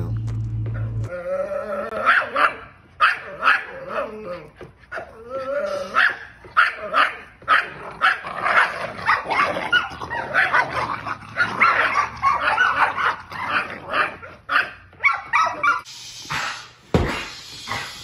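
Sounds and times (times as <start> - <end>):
puppies barking and yipping: 1.8 - 15.9.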